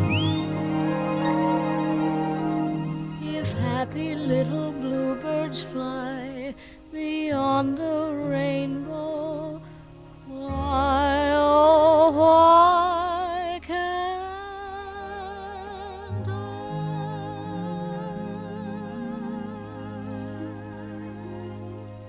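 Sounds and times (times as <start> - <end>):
steady bass accompaniment: 0.0 - 6.4
slow tender melody with vibrato: 0.0 - 22.0.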